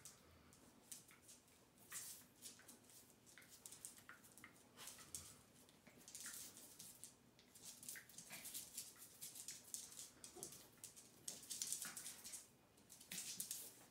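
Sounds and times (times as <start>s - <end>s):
dog claws scrabbling on floor: 6.0s - 13.9s.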